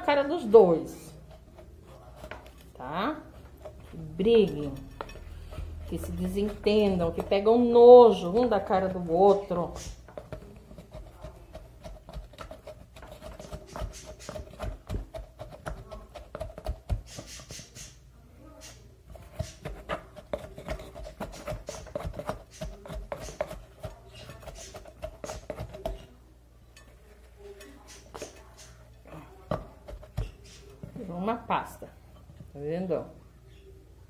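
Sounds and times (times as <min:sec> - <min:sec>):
wooden pestle grinding in glass jar: 0:01.2 - 0:17.6, 0:19.1 - 0:26.1.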